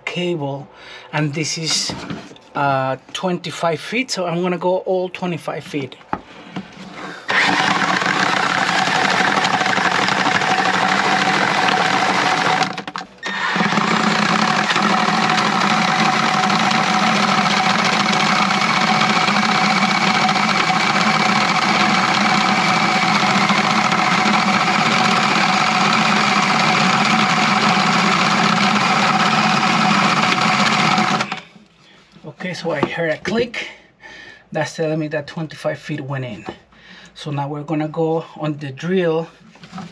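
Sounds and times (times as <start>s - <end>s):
drill motor whine: 7.3s - 31.4s.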